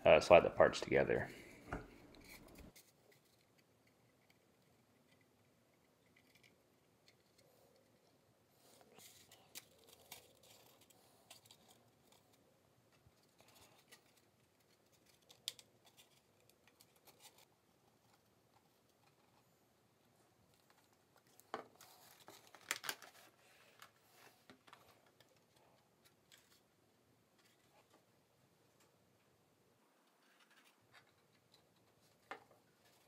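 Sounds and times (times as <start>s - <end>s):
plastic parts clicking and scraping: 8.7s - 19.4s, 20.5s - 26.7s, 30.0s - 33.0s.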